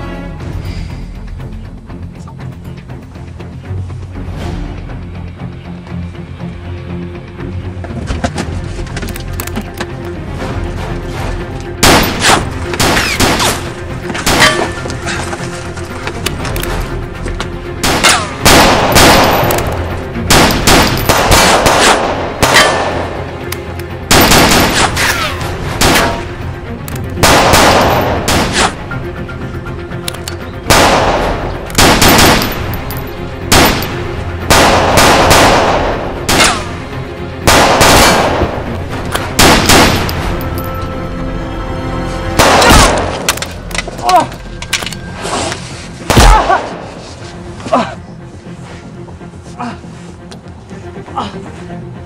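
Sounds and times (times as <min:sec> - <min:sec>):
background music: 0:00.0 - 0:52.0
gunshots with echoing tails: 0:17.8 - 0:23.2, 0:24.1 - 0:25.0, 0:27.2 - 0:28.8, 0:30.6 - 0:32.7, 0:33.5 - 0:36.7, 0:37.4 - 0:38.6, 0:39.4 - 0:40.1, 0:42.4 - 0:43.3.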